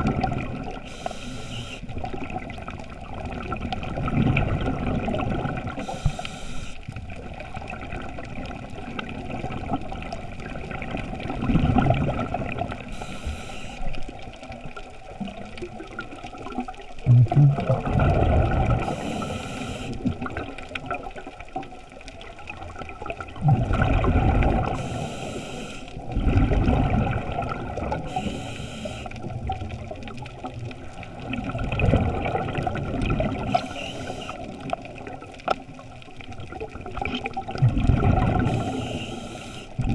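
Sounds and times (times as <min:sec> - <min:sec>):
exhaled bubbles gushing: 0:00.0 - 0:00.9, 0:01.9 - 0:06.0, 0:06.9 - 0:13.1, 0:13.9 - 0:25.2, 0:25.9 - 0:28.4, 0:29.1 - 0:39.9
regulator hissing inhale: 0:00.8 - 0:01.9, 0:05.8 - 0:06.8, 0:12.9 - 0:14.0, 0:18.8 - 0:20.1, 0:24.7 - 0:26.0, 0:28.0 - 0:29.3, 0:33.5 - 0:34.6, 0:38.4 - 0:39.8.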